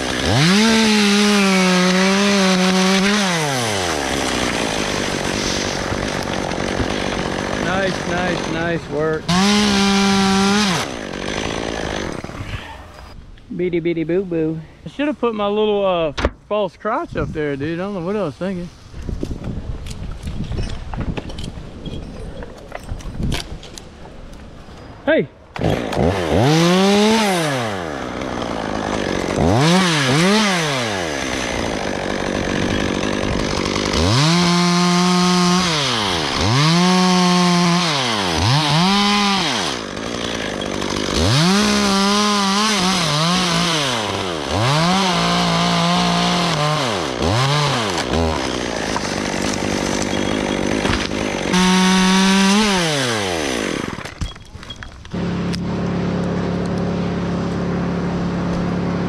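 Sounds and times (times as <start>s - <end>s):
chainsaw revving: 0.0s - 13.1s, 25.6s - 54.2s, 55.0s - 59.0s
low engine hum: 55.1s - 59.0s.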